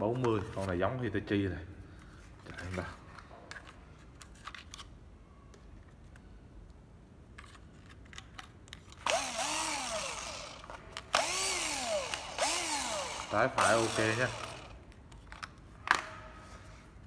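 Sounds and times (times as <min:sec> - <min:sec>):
cordless drill motor whining: 0:09.0 - 0:14.8.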